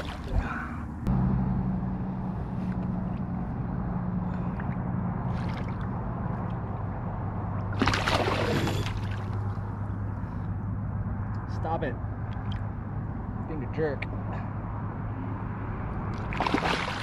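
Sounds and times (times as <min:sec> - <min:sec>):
fish splashing at the surface: 0:07.7 - 0:09.4, 0:16.2 - 0:17.0.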